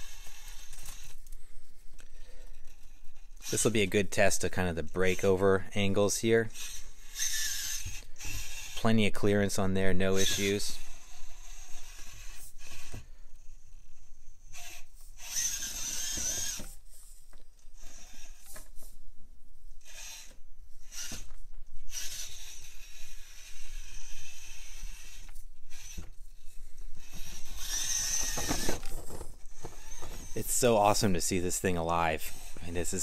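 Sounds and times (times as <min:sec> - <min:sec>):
electric motor whining: 0:00.0 - 0:01.3, 0:06.5 - 0:09.4, 0:10.0 - 0:17.1, 0:17.8 - 0:19.0, 0:19.8 - 0:33.0.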